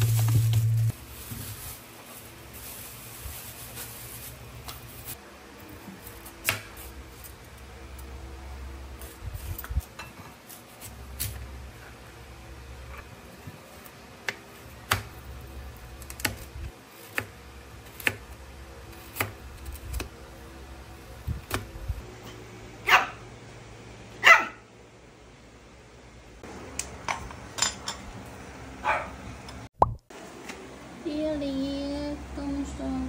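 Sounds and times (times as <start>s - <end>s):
small dog barking: 22.8s - 23.2s, 24.2s - 24.7s, 28.8s - 29.2s.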